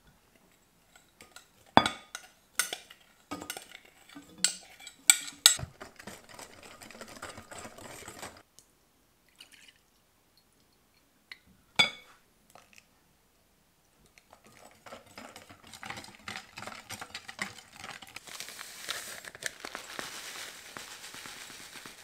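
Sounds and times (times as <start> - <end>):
whisking batter in glass bowl: 2.6 - 8.4, 14.3 - 18.2
whisk clinking glass bowls: 14.4 - 18.2.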